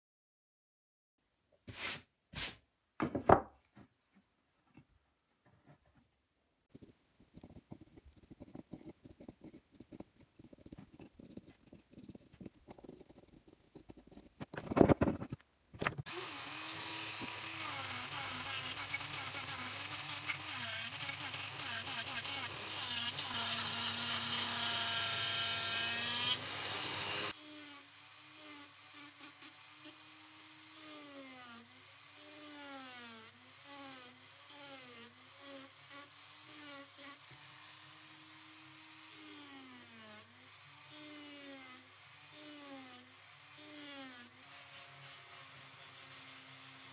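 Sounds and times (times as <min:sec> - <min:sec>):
pencil scratching on wood: 0:06.7 - 0:16.0
rotary tool whining: 0:06.8 - 0:24.6.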